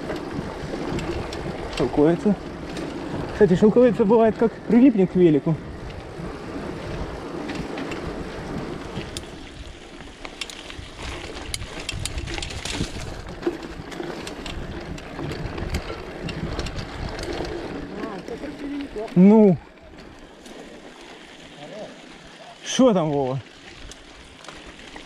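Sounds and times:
sharp clicks from bike: 0:00.0 - 0:04.2, 0:05.7 - 0:21.8, 0:22.9 - 0:25.0
wind on microphone: 0:10.7 - 0:17.9.

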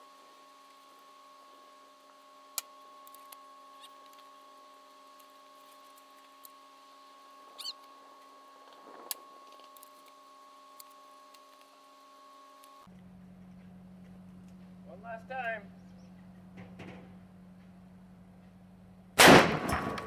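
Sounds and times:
faint steady hum: 0:00.0 - 0:20.0
air rifle shot: 0:19.2 - 0:20.0.

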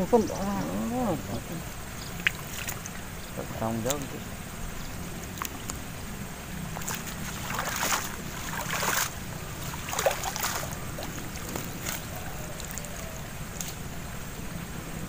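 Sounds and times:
wind: 0:00.0 - 0:15.0
water splashing and dripping: 0:02.1 - 0:04.1, 0:06.6 - 0:13.8.

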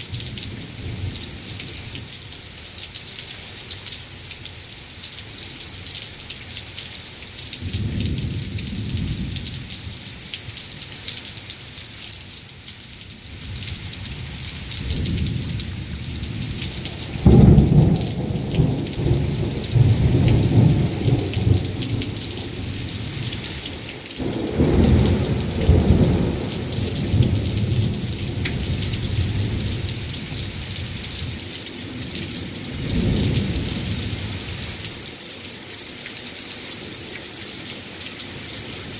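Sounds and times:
heavy rain hissing: 0:13.2 - 0:38.9
low thunder rumbling: 0:14.8 - 0:34.5.

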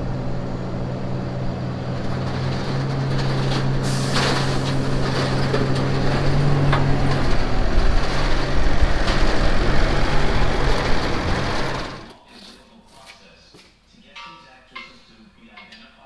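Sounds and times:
tractor diesel engine running: 0:00.0 - 0:12.1
sharp metal clanks: 0:14.1 - 0:16.0.

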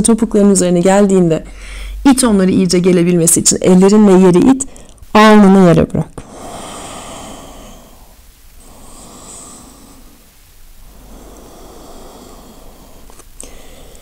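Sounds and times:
woman breathing slowly: 0:01.5 - 0:02.0, 0:04.7 - 0:05.1, 0:06.2 - 0:14.0.

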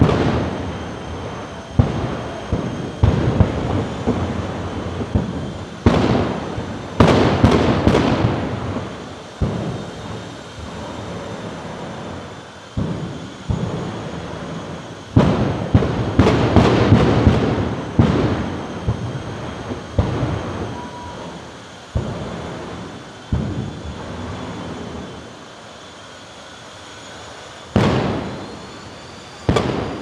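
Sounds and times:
afterburner bangs: 0:00.0 - 0:30.0
jet engine rumble: 0:00.0 - 0:30.0.

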